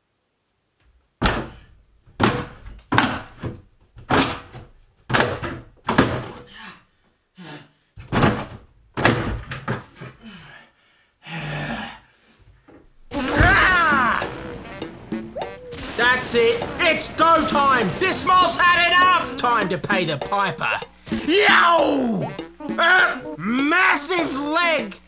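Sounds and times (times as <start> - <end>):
door cracking: 13.2 - 14.0.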